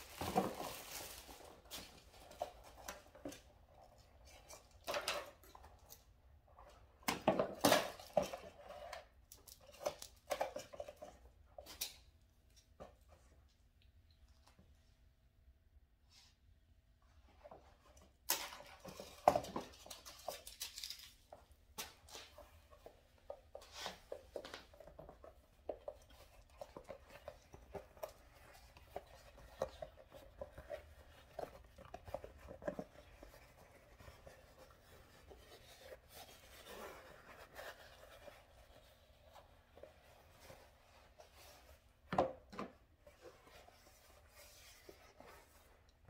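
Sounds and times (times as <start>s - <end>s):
paper crinkling and rustling: 0.0s - 3.4s, 18.3s - 23.0s.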